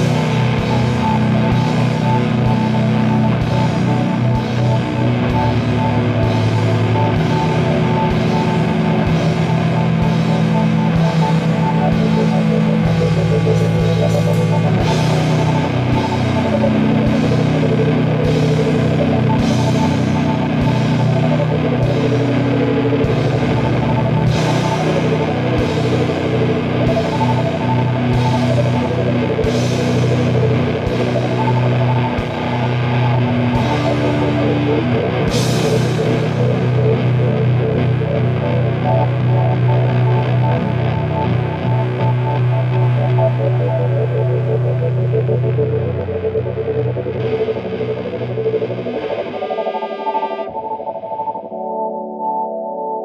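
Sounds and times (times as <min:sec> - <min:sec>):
drum kit: 0:00.0 - 0:49.2
heavy metal low chords: 0:00.0 - 0:52.2.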